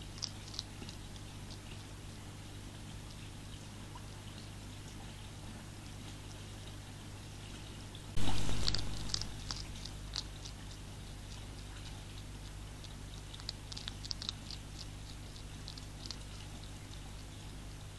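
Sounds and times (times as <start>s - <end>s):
hedgehog crunching dry food: 0.0s - 2.2s, 8.2s - 17.9s
low electrical hum: 0.0s - 17.9s
sudden loud burst of noise: 8.2s - 9.6s.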